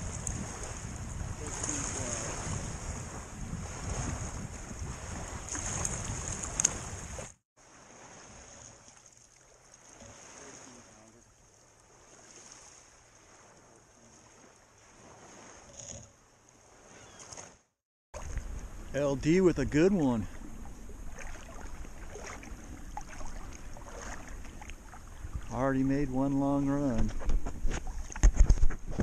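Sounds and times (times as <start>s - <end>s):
wind buffeting microphone: 0.0s - 7.3s, 18.2s - 29.0s
waves lapping on shore: 0.0s - 17.6s, 18.2s - 28.8s.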